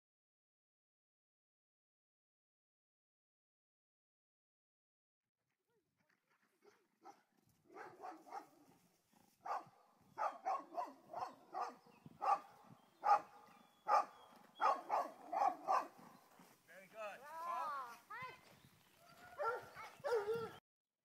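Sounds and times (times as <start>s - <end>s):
dog barking: 6.6s - 8.8s, 9.4s - 16.2s, 19.2s - 20.6s.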